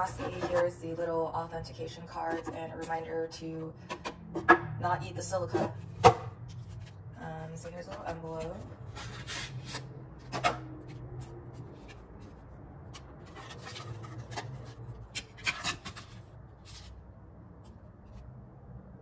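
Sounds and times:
paper envelope and cards rustling: 5.8s - 17.0s.

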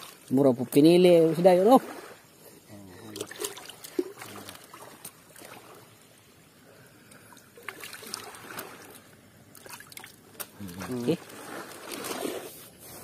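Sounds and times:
hand swishing in water: 9.6s - 13.0s.

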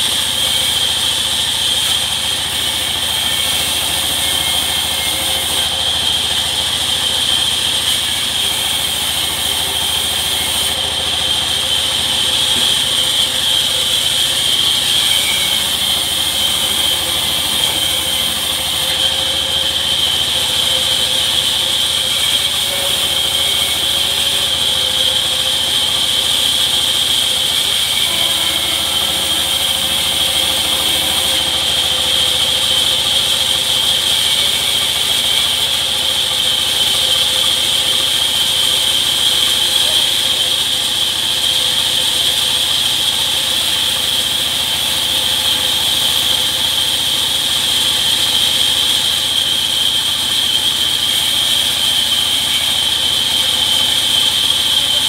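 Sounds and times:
band saw cutting timber: 0.0s - 55.0s
high-pitched saw whine: 0.0s - 55.0s.

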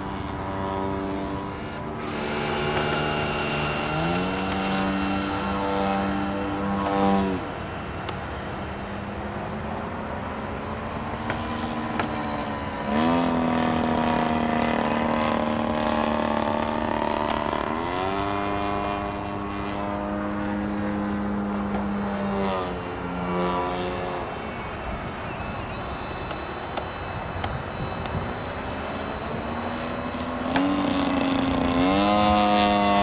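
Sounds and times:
electric ducted fans whining: 0.0s - 33.0s
wind rumble on microphone: 13.2s - 33.0s.

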